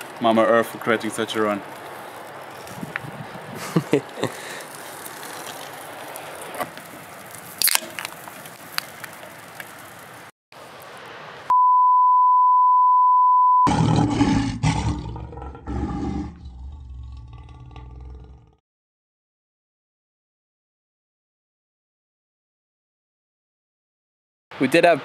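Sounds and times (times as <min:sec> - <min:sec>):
loud steady beep tone: 0:11.5 - 0:13.7
lions growling: 0:13.7 - 0:18.6.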